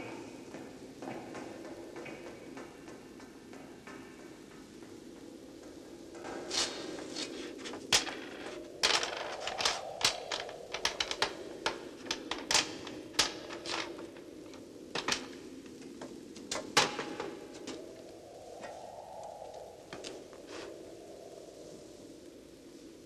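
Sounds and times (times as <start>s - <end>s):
footsteps on metal staircase: 0.0s - 17.8s.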